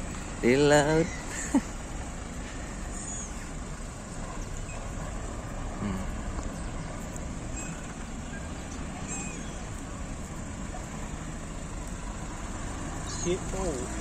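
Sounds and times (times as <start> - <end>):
low outdoor rumble: 0.0 - 14.0
high bird calls: 0.8 - 1.7, 2.4 - 5.1, 5.8 - 9.9.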